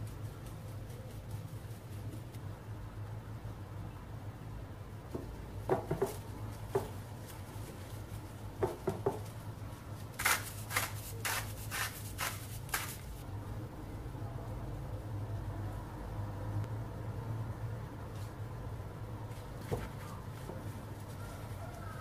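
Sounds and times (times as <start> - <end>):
herb shaker shaking: 0.0 - 2.6.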